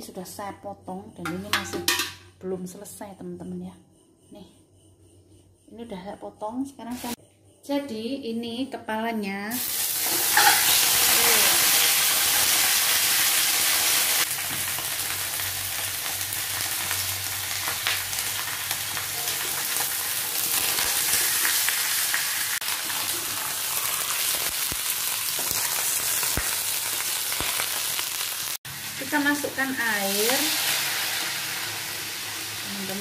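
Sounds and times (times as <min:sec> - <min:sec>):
fish frying in oil: 0:09.6 - 0:33.0.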